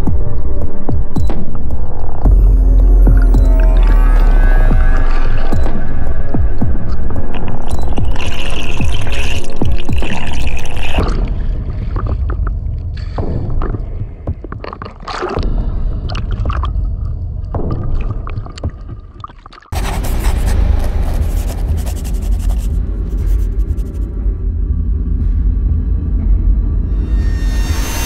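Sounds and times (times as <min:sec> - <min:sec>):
soundtrack music: 0:00.0 - 0:10.4, 0:19.8 - 0:28.0
music cue with deep rumble: 0:00.0 - 0:19.1, 0:19.8 - 0:28.0
underwater gurgling: 0:07.4 - 0:11.4.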